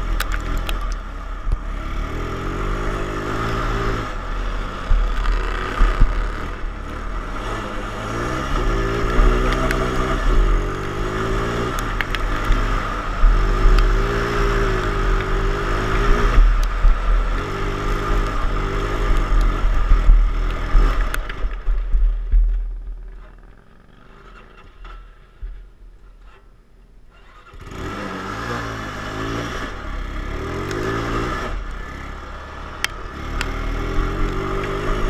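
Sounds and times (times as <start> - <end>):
ride-on mower engine revving: 0.0 - 21.6, 27.2 - 35.0
heavy low rumble: 0.0 - 23.8.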